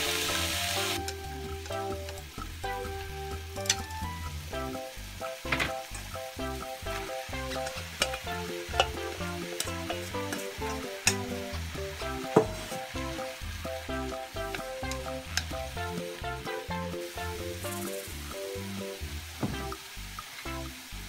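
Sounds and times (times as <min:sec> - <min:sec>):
light background music: 0:00.0 - 0:21.0
vegetables sizzling in frying pan: 0:00.0 - 0:21.0
chopsticks clicking on pan: 0:07.6 - 0:11.4, 0:14.5 - 0:15.6.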